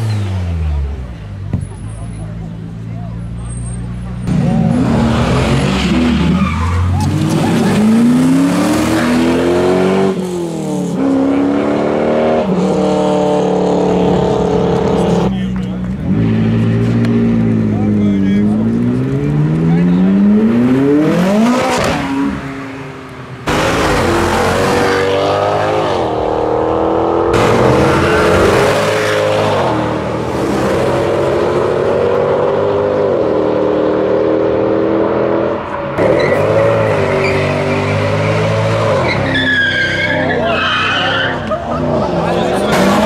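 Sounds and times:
car engines accelerating: 0:00.0 - 0:43.0
tyre squeal: 0:06.2 - 0:07.8, 0:36.0 - 0:41.6.

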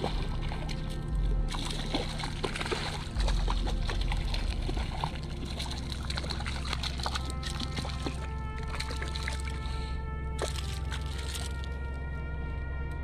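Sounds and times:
fish splashing in water: 0:00.0 - 0:11.7.

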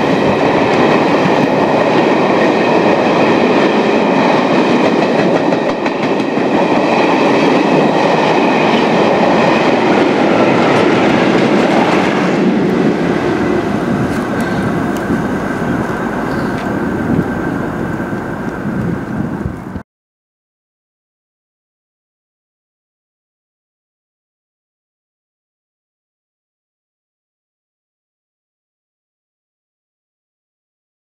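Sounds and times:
train wheels rumbling on rails: 0:00.0 - 0:19.8.

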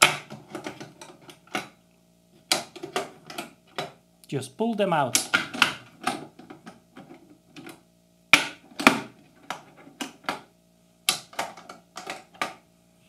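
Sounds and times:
magnet snapping onto metal pins: 0:05.1 - 0:06.2.

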